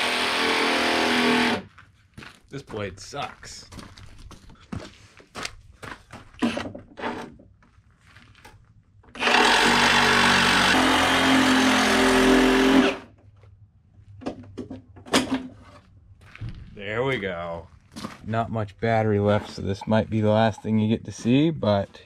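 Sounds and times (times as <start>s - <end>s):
cordless power saw cutting: 0.0s - 1.7s, 9.1s - 13.1s
knocks and handling sounds: 13.1s - 18.2s.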